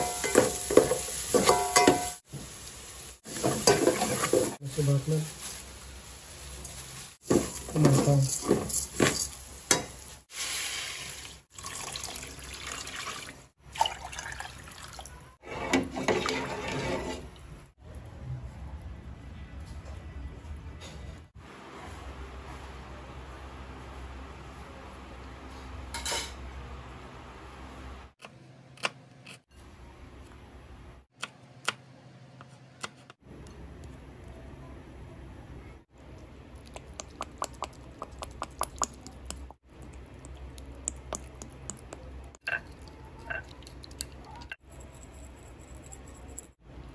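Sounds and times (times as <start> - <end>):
water pouring into a pot: 10.3 - 15.4.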